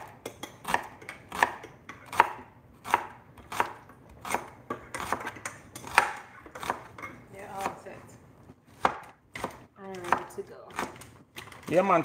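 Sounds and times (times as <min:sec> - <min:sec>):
knife slicing onion: 0:00.0 - 0:07.8, 0:08.7 - 0:11.7.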